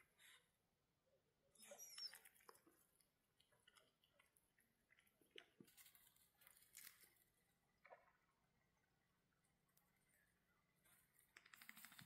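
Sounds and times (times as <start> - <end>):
faint clicks and rustles: 1.9 - 8.0, 10.8 - 12.0.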